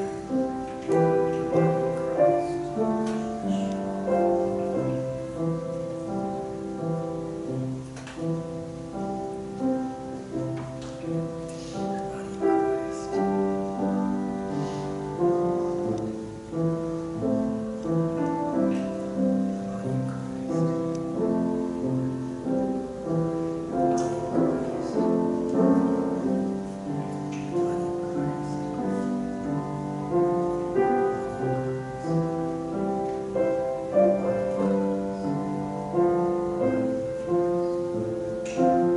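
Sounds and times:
slow soft piano music: 0:00.0 - 0:38.9.

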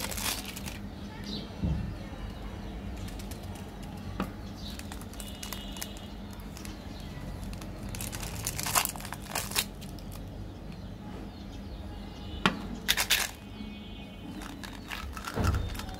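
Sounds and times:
wrapper crinkling: 0:00.0 - 0:00.9, 0:02.8 - 0:10.3, 0:12.9 - 0:13.4, 0:14.3 - 0:15.9.

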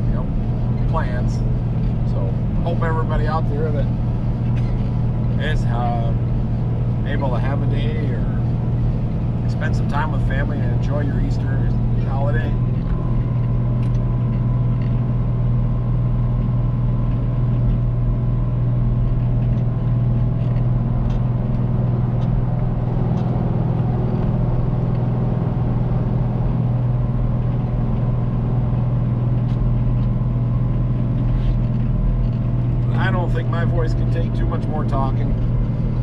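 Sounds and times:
tractor diesel engine drone: 0:00.0 - 0:36.0.

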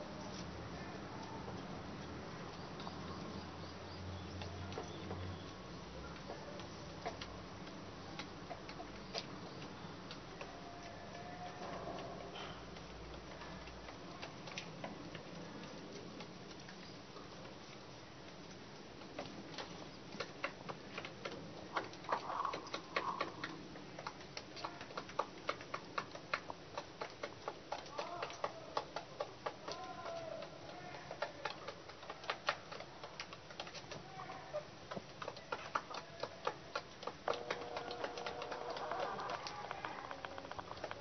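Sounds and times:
beak tapping on wood and plastic: 0:01.2 - 0:17.6, 0:18.9 - 0:41.0
hens clucking: 0:20.0 - 0:41.0.

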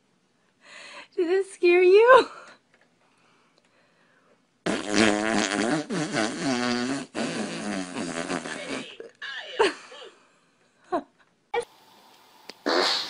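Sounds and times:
baby blowing a raspberry: 0:04.6 - 0:09.1, 0:12.6 - 0:13.0.

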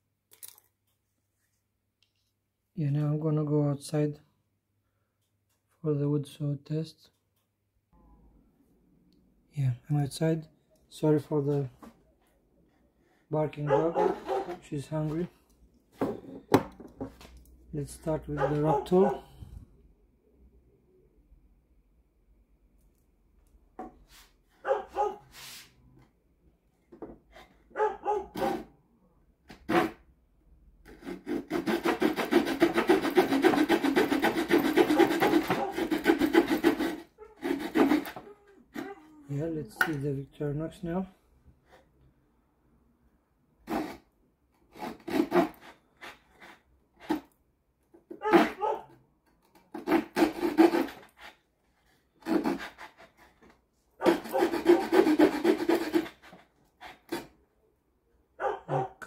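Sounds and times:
saw cutting wooden board: 0:13.7 - 0:15.3, 0:18.0 - 0:19.2, 0:28.3 - 0:28.7, 0:29.5 - 0:30.0, 0:30.8 - 0:38.9, 0:43.6 - 0:44.0, 0:44.7 - 0:47.3, 0:48.2 - 0:48.7, 0:49.7 - 0:51.4, 0:52.2 - 0:57.3.

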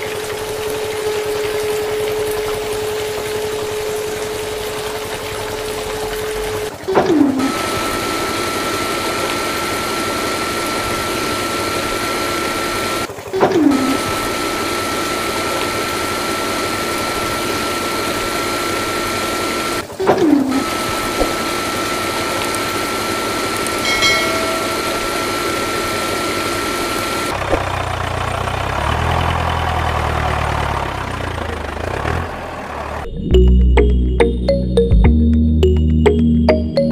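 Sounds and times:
small electric motors whining: 0:06.3 - 0:13.1, 0:13.7 - 0:27.4.

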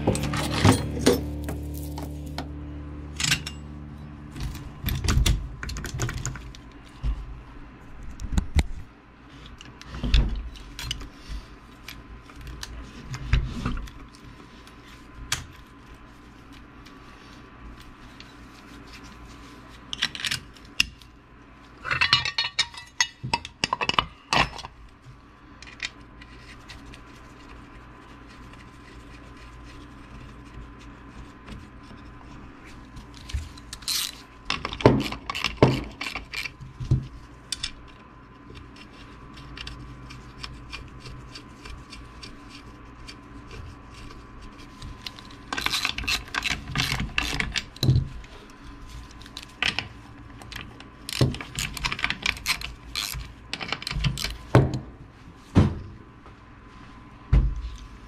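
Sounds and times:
metal parts clicking and knocking: 0:00.0 - 0:02.4, 0:21.8 - 0:24.7, 0:33.6 - 0:36.6, 0:45.1 - 0:48.1, 0:49.3 - 0:54.9
faint steady hum: 0:00.0 - 0:58.0.

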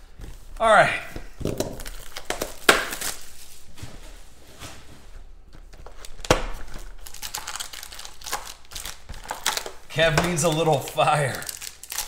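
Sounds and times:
card pack rustling: 0:05.4 - 0:12.0.

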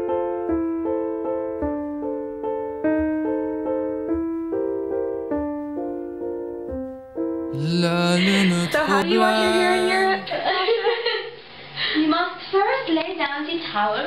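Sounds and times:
keyboard playing slow melody: 0:05.4 - 0:10.3.

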